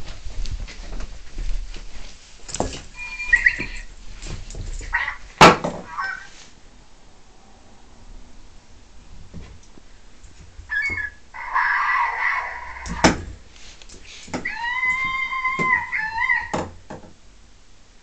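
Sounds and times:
electronic animal calls from toy: 3.0s - 3.9s, 4.9s - 5.2s, 5.9s - 6.4s, 10.7s - 13.2s, 14.4s - 16.7s.

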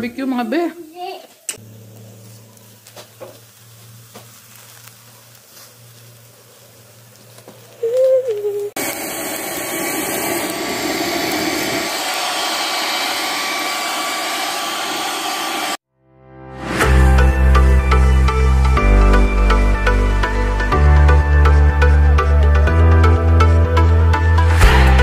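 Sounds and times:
hair dryer running: 8.8s - 15.8s.

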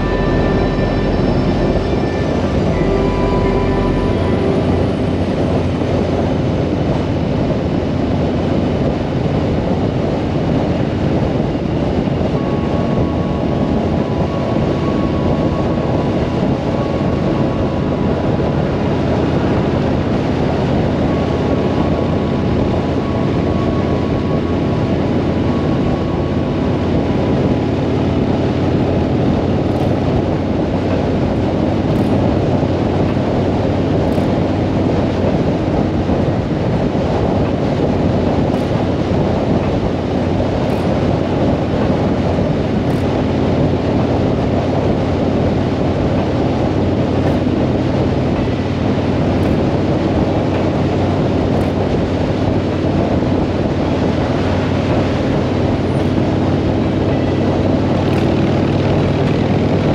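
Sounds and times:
motorcycle engine droning: 0.0s - 59.9s
wind rushing over microphone: 0.0s - 59.9s.

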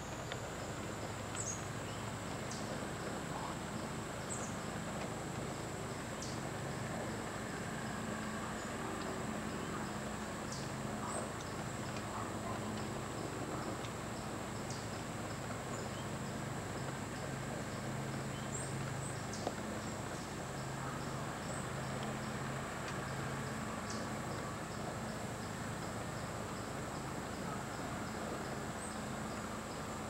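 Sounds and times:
insects chirping: 0.0s - 30.0s
steady hiss: 0.0s - 30.0s.

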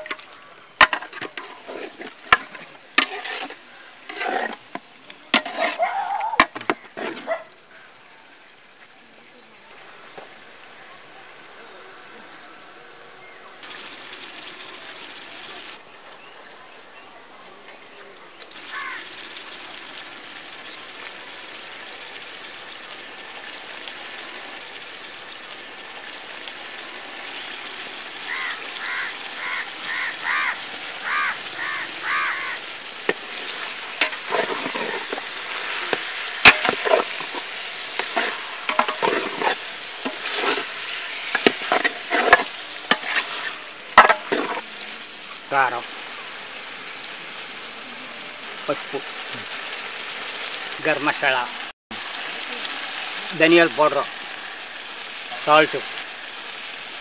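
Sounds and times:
food sizzling in oil: 0.0s - 7.6s, 12.6s - 15.8s, 18.2s - 57.0s
metal ladle scraping a pot: 0.8s - 7.4s, 33.0s - 44.8s.

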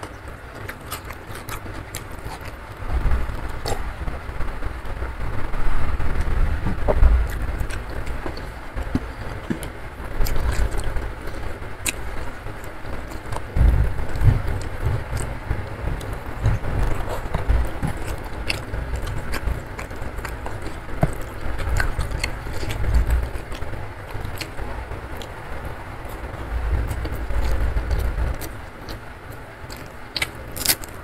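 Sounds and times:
person chewing: 0.0s - 4.0s, 6.1s - 31.0s
deep rumbles: 0.0s - 31.0s
rain-like rush: 0.0s - 31.0s
fingers mixing rice squishing: 7.2s - 31.0s.

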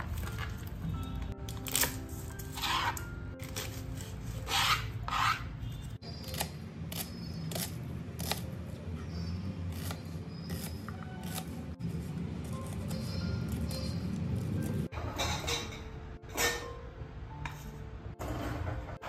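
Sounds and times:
background music: 0.0s - 19.0s
knife rasping through onion: 2.5s - 8.4s, 9.7s - 11.6s.

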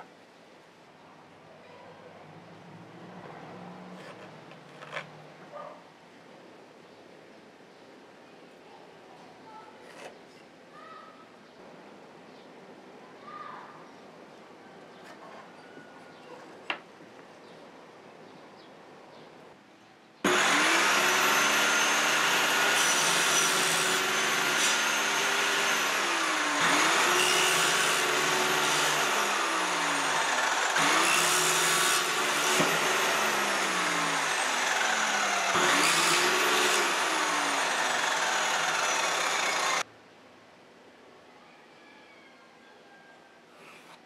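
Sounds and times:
table saw cutting wood: 20.3s - 39.8s.

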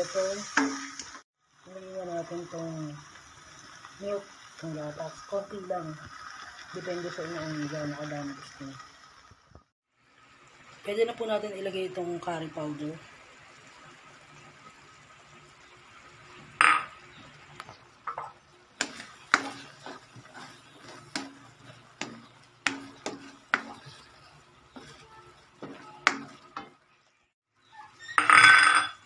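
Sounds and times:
utensil scraping pan: 18.1s - 26.8s.

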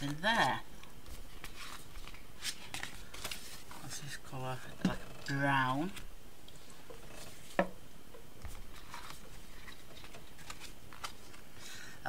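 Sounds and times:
card rustling and ticking: 0.0s - 4.0s, 6.9s - 11.6s.

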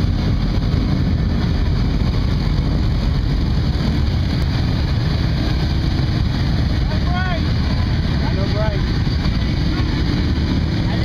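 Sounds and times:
swamp buggy engine rumbling: 0.0s - 11.0s.

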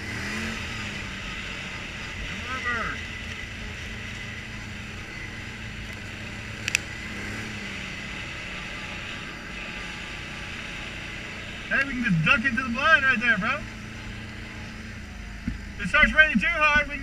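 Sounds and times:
atv engine running: 0.0s - 17.0s
sharp tick: 6.6s - 6.9s.

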